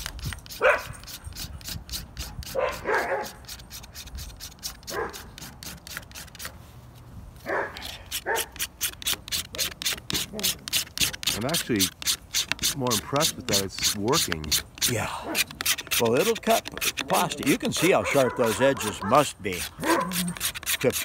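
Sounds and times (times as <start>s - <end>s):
sharpener scraping plastic: 0.0s - 6.6s, 7.8s - 21.0s
dog barking: 0.6s - 0.9s, 2.5s - 3.4s, 4.9s - 5.3s, 7.5s - 8.5s, 17.9s - 19.2s, 19.8s - 20.2s.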